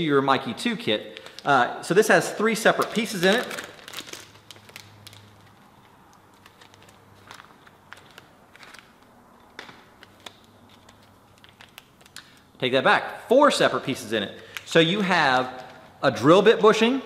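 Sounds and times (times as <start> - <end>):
plastic bag rustling: 2.4 - 12.5.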